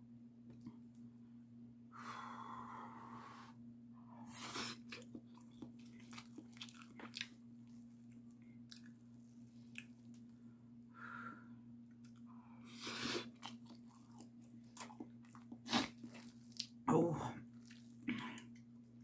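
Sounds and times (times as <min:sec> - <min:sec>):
steady low hum: 0:00.0 - 0:19.0
chewing with wet clicks: 0:04.8 - 0:10.3, 0:11.9 - 0:12.3, 0:13.2 - 0:16.8, 0:17.6 - 0:18.7.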